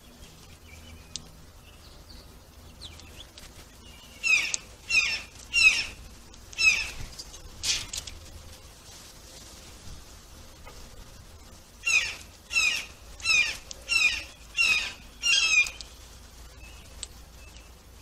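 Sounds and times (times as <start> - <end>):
songbird singing: 0.0 - 8.8, 10.5 - 18.0.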